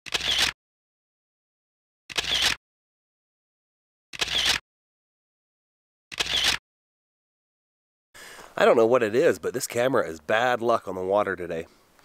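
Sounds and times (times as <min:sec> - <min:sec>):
camera shutter click: 0:00.1 - 0:00.6, 0:02.1 - 0:02.6, 0:04.2 - 0:04.6, 0:06.1 - 0:06.6.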